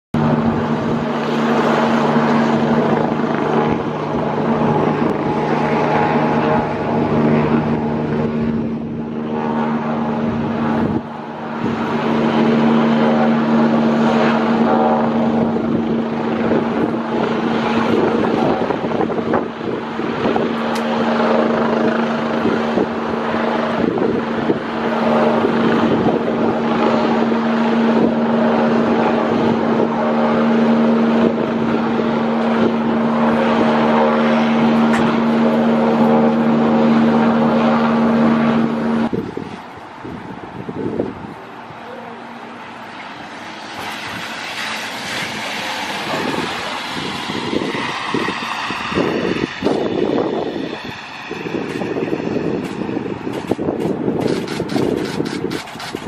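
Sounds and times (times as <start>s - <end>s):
helicopter engine and rotor hum: 0.1s - 56.0s
wind buffeting microphone: 0.2s - 56.0s.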